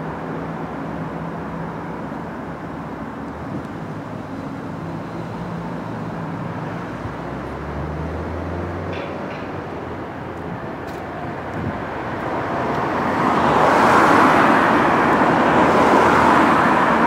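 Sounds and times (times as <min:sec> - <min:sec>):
heavy low engine drone: 0:00.0 - 0:13.6
road traffic passing: 0:00.0 - 0:17.0.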